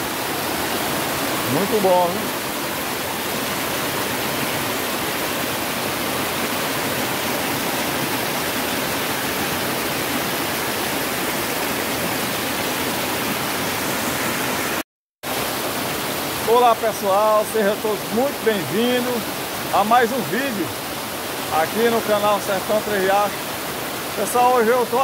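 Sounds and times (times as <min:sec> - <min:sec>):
floodwater rushing down rock channel: 0:00.0 - 0:25.0.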